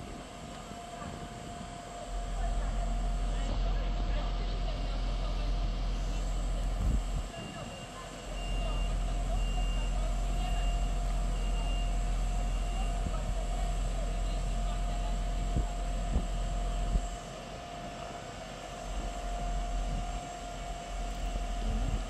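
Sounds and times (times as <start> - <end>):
constant hum: 0.0 - 22.0
diesel engine idling rumble: 0.0 - 22.0
short beeps: 7.4 - 13.1.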